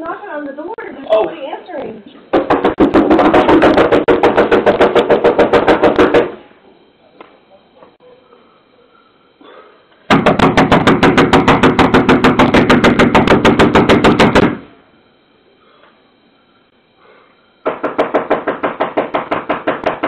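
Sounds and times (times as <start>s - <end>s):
rapid knocking on window: 2.3s - 6.3s, 10.1s - 14.6s, 17.6s - 20.0s
fist pounding on door: 2.3s - 6.4s, 10.1s - 14.6s, 17.6s - 20.0s.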